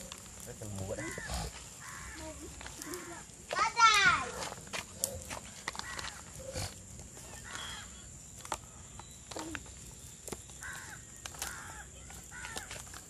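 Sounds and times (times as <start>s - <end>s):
faint bird calls: 0.9s - 3.3s, 5.0s - 12.7s.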